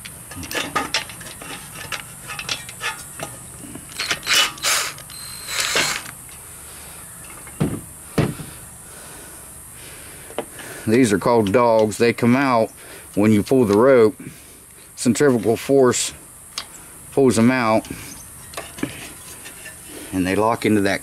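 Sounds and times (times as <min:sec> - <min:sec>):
scraping rattles: 0:00.0 - 0:05.0
dull knocks: 0:07.6 - 0:08.5.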